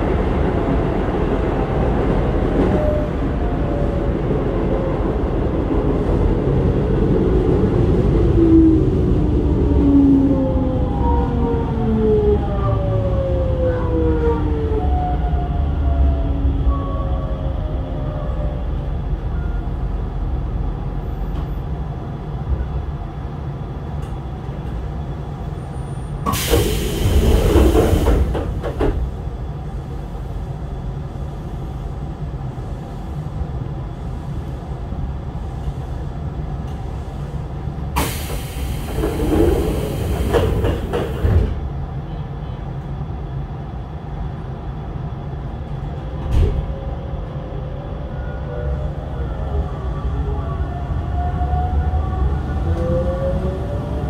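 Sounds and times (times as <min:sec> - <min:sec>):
stopped train hum: 0:00.0 - 0:54.0
train doors sliding: 0:26.1 - 0:29.4, 0:35.5 - 0:41.8, 0:45.7 - 0:46.9.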